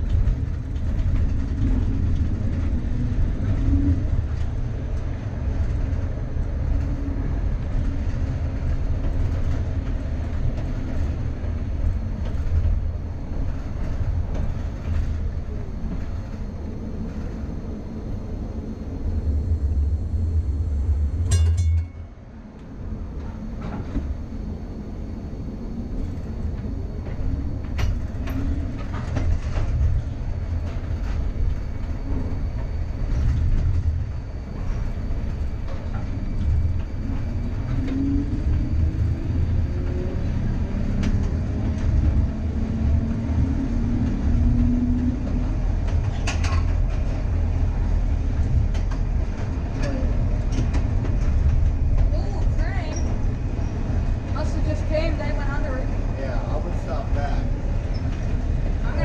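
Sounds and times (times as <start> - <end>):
streetcar wheels rumbling on rail: 0.0 - 59.0
sharp ringing strike: 21.3 - 22.1.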